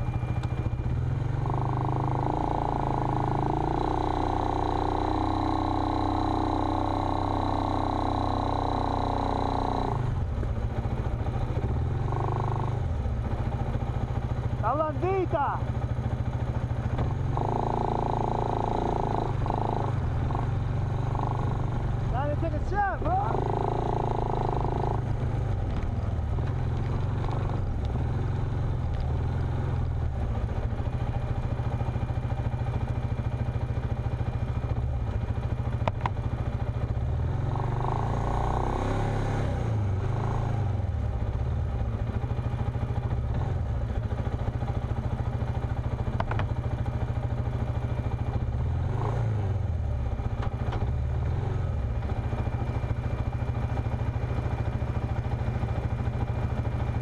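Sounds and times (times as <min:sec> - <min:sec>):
off-road vehicle engine droning: 0:00.0 - 0:57.0.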